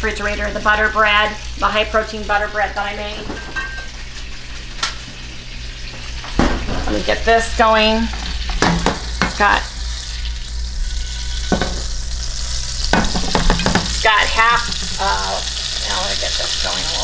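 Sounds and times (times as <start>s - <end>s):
fat sizzling in frying pan: 0.0s - 17.0s.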